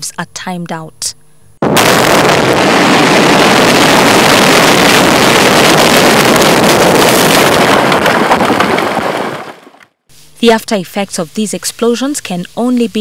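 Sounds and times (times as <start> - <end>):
crackle of small hits: 1.6 - 10.0
rush of rock debris and dust: 1.7 - 9.8.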